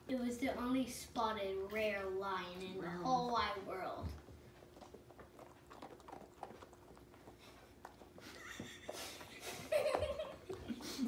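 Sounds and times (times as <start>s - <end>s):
dog chewing a biscuit: 4.2s - 8.4s.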